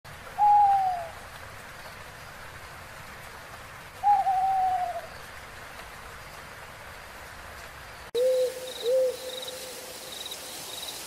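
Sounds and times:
faint steady hiss: 0:00.1 - 0:11.0
owl hooting: 0:04.0 - 0:05.1, 0:08.2 - 0:09.8.

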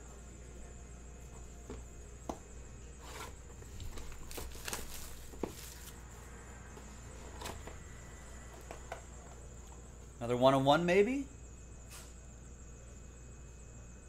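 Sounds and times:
plastic wrap crinkling and tearing: 0:03.7 - 0:06.0.

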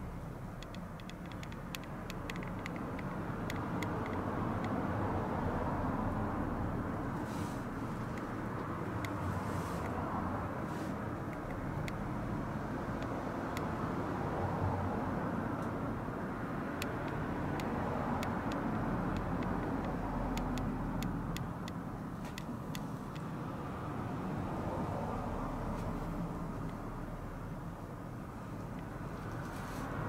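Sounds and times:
small sharp clicks: 0:00.5 - 0:04.8, 0:11.2 - 0:12.1, 0:16.8 - 0:23.3.

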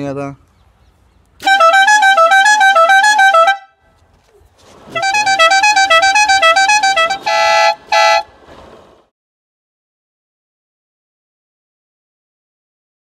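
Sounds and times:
motorcycle air horn notes: 0:01.4 - 0:03.7, 0:04.9 - 0:08.3
short horn chord blasts: 0:01.4 - 0:03.7, 0:04.9 - 0:08.3.

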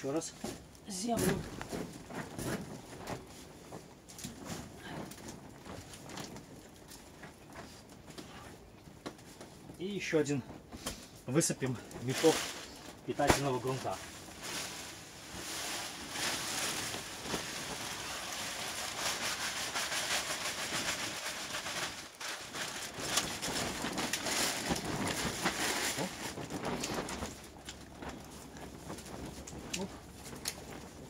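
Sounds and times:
plastic bag rustling: 0:00.0 - 0:31.0
soil pouring out: 0:11.7 - 0:27.3.

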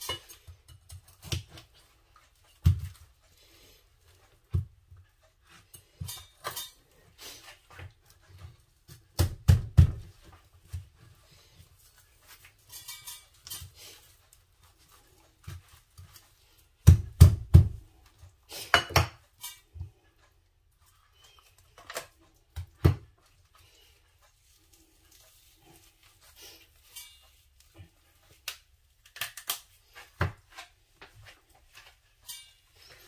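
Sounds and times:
utensils and dishes clinking: 0:00.0 - 0:01.0, 0:05.6 - 0:07.0, 0:12.3 - 0:14.3, 0:18.5 - 0:20.0, 0:26.5 - 0:27.6, 0:31.8 - 0:33.0.

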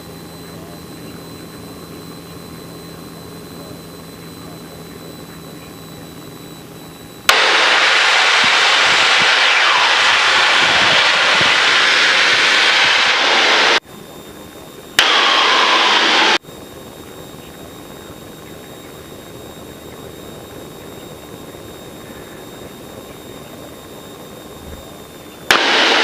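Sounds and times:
headset hiss: 0:07.3 - 0:13.8.

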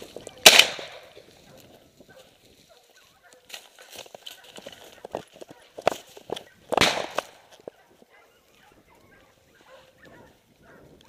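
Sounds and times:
shotgun shot: 0:00.4 - 0:01.0, 0:06.8 - 0:07.4.

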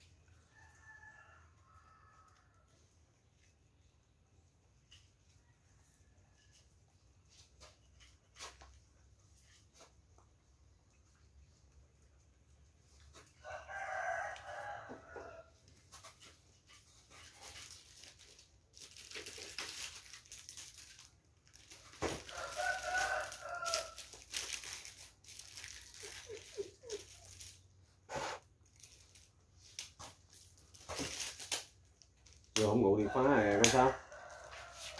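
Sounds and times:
rooster crowing: 0:00.5 - 0:02.7, 0:13.4 - 0:15.5, 0:22.2 - 0:24.1, 0:32.7 - 0:34.9
rustling and shuffling: 0:03.3 - 0:34.9.

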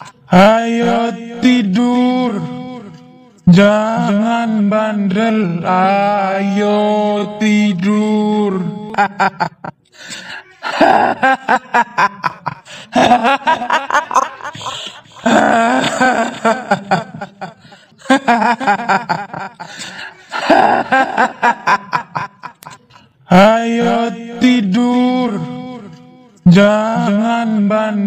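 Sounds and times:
woman cackling laugh: 0:10.6 - 0:19.7, 0:20.3 - 0:22.9.

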